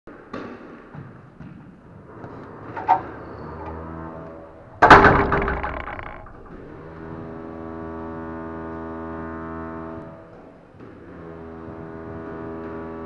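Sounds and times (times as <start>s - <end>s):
glass door banging shut: 4.8s - 6.9s
squash ball being hit: 4.8s - 6.9s.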